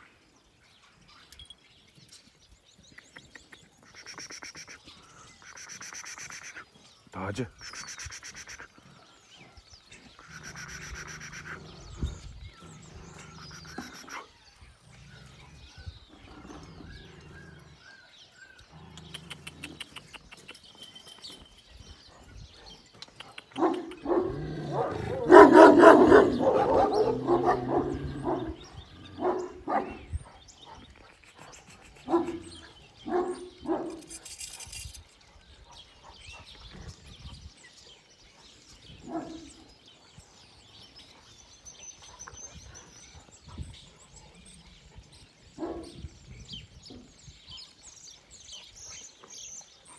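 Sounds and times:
dogs barking: 22.1 - 31.0, 32.0 - 34.7, 39.0 - 39.7, 44.4 - 46.1.

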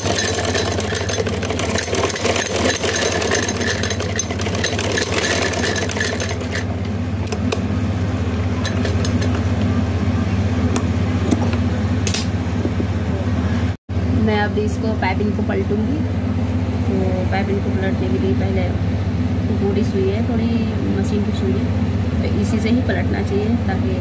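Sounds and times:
sewing machine stitching: 0.0 - 6.7
steady low hum: 0.0 - 24.0.

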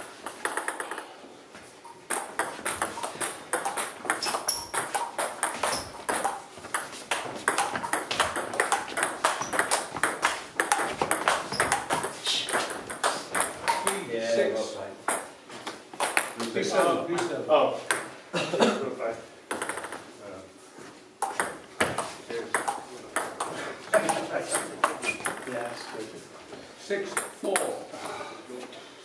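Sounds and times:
table tennis ball clicking: 2.1 - 14.0, 21.2 - 25.5.

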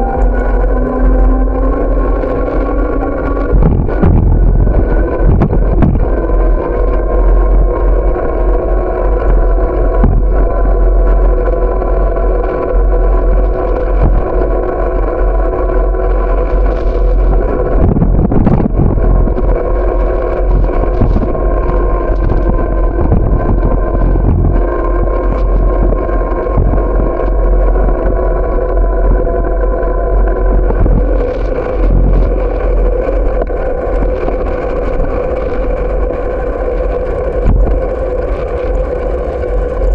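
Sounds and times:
constant hum: 0.0 - 39.9
wind and road rumble: 0.0 - 39.9.

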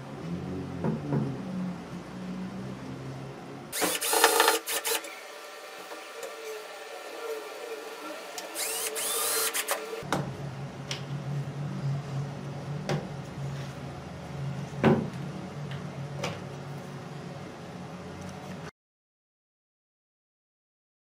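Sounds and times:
cordless drill whirring: 3.8 - 10.0
steady low hum: 10.0 - 18.7.

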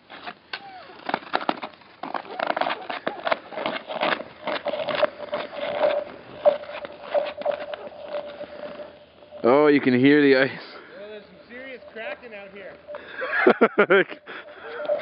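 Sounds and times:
ice cracking: 1.0 - 10.6
footsteps crunching on ice: 1.0 - 13.3
ice ringing tone: 5.0 - 15.0.

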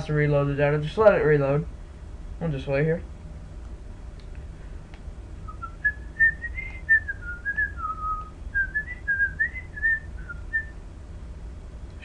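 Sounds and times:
person whistling a tune: 5.5 - 10.7.

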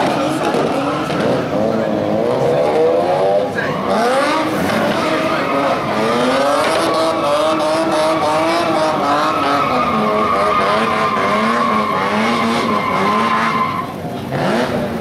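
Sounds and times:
car engine revving: 0.0 - 15.0
tyre squeal: 3.4 - 14.0.

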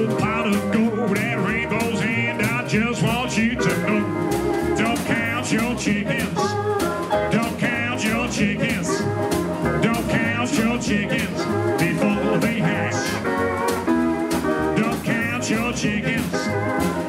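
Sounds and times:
rockabilly band playing: 0.0 - 17.0.

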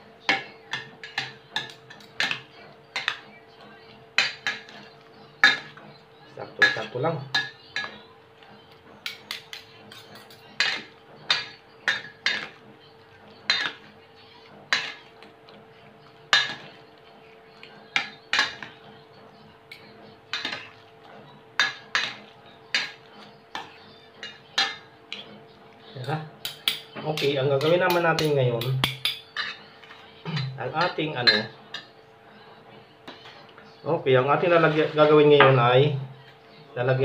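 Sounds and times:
fork clinking against metal bowl: 9.0 - 12.6, 13.4 - 13.9, 19.7 - 20.8, 21.6 - 25.3, 26.0 - 31.9.

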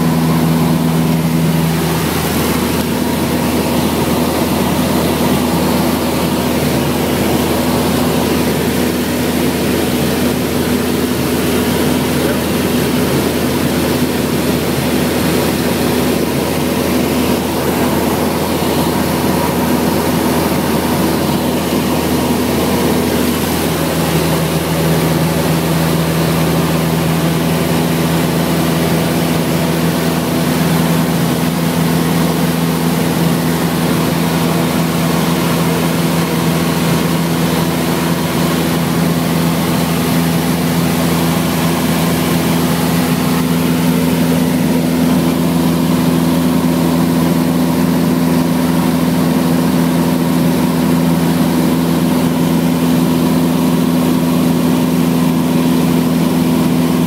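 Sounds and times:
light plane engine drone in cabin: 0.0 - 57.0.

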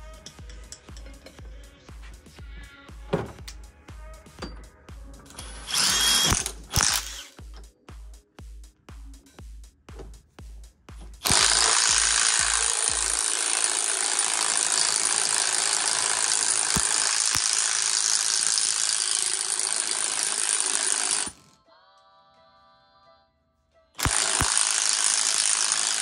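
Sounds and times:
impact driver hammering: 5.4 - 7.3, 11.2 - 21.5, 24.0 - 26.0.

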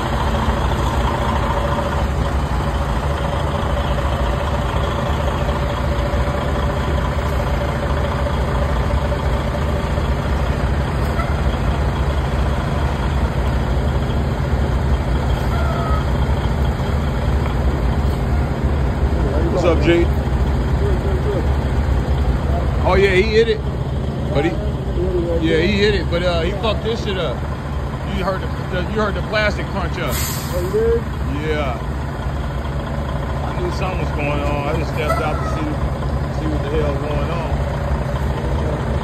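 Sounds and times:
diesel truck engine idling: 0.0 - 39.0.

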